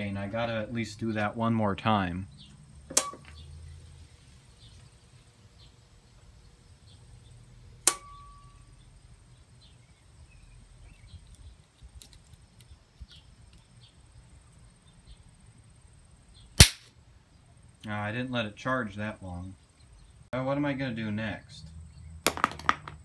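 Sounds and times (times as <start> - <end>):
capacitor discharge loud crack: 16.6 - 17.0.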